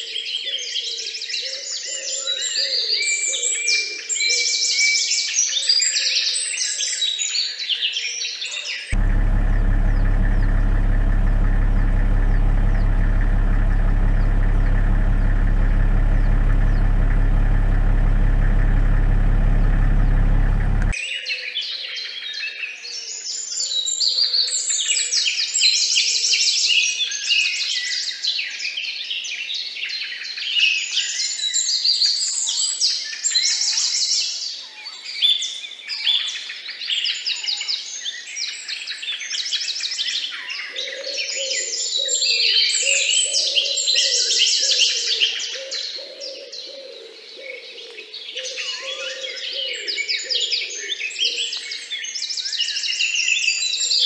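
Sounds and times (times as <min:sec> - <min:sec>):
steady low hum: 0:09.0 - 0:21.0.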